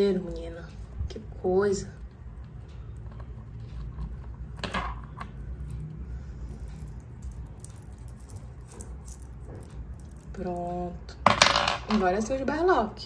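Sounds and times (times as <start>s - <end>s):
steady low hum: 0.0s - 13.0s
bracelet charms clinking: 3.0s - 10.7s.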